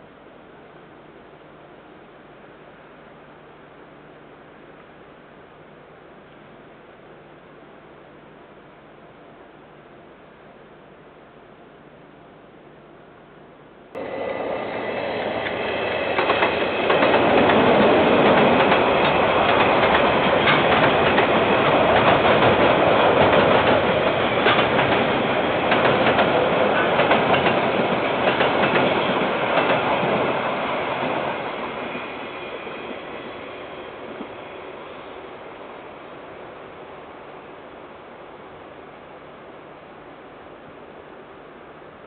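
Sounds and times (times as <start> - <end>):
train rumble: 13.9 - 41.4
train wheels clattering over rail joints: 15.3 - 31.3.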